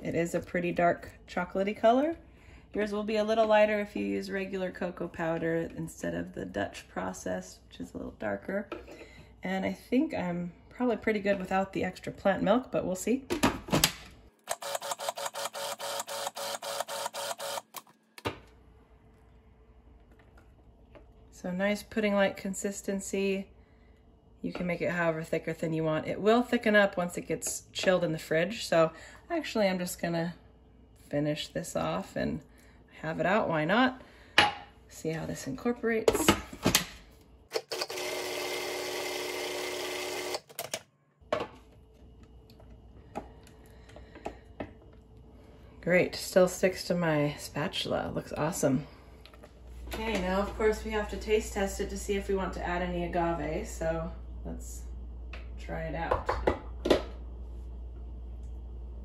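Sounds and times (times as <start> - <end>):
food processor motor pulsing: 14.4 - 17.9, 37.5 - 40.6.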